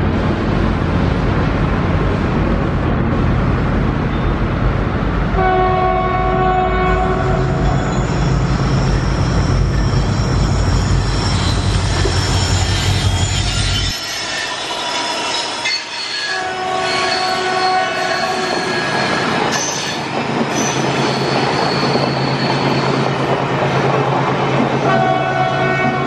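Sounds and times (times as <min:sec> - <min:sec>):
diesel locomotive engine drone: 0:00.0 - 0:26.0
low diesel locomotive hum: 0:00.0 - 0:26.0
steel wheels squealing: 0:07.4 - 0:23.2
rail clatter: 0:18.0 - 0:26.0.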